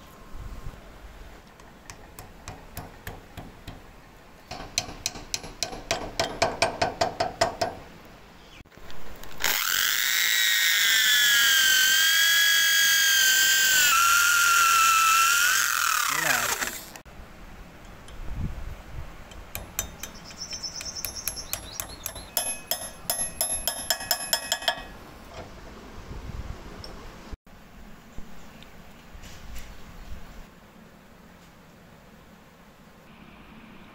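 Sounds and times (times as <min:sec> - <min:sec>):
hammer tapping wood wedge: 0:01.6 - 0:03.9, 0:04.5 - 0:07.8
electric drill boring steel: 0:09.3 - 0:17.0.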